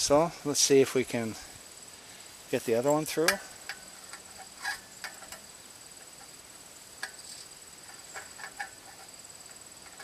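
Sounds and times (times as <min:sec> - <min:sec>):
high-pitched insect drone: 0:00.1 - 0:10.0
bolt clicking against metal tubing: 0:03.2 - 0:05.4.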